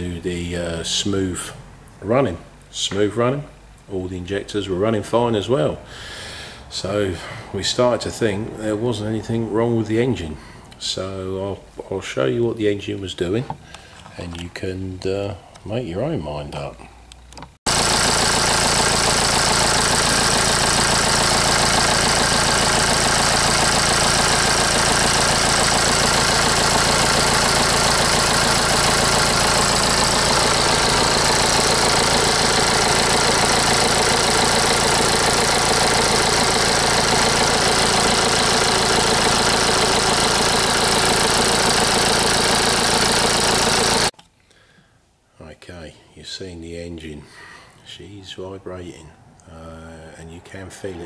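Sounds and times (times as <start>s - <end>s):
diesel engine idling: 17.7s - 44.1s.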